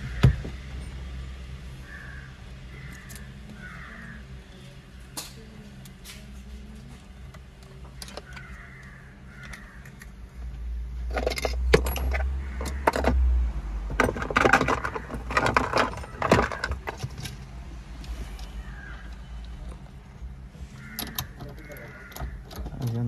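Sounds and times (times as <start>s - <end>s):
metal tools clinking and rattling: 11.1s - 13.2s, 13.9s - 17.4s.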